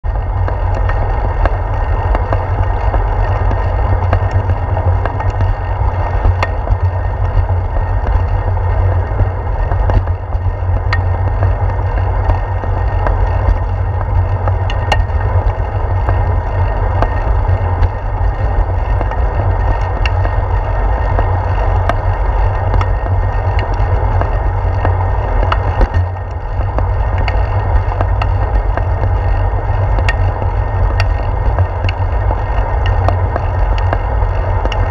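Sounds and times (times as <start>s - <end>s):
bicycle rolling on concrete: 0.0s - 34.9s
low wind rumble: 0.0s - 34.9s
sharp ticks and knocks: 0.2s - 34.9s.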